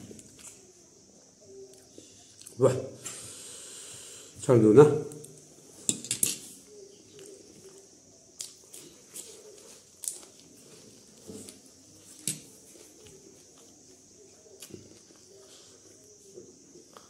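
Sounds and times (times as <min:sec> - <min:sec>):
person chewing food: 0:12.7 - 0:17.0.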